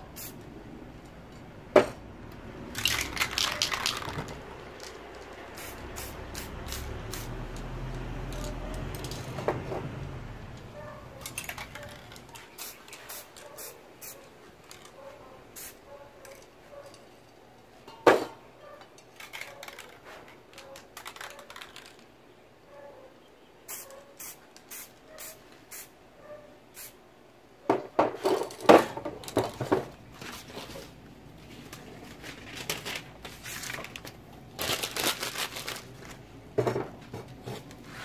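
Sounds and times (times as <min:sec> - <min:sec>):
spray paint hissing: 0:00.0 - 0:00.5, 0:05.5 - 0:07.5, 0:11.2 - 0:14.9, 0:15.5 - 0:16.4, 0:23.7 - 0:25.9, 0:26.8 - 0:27.0.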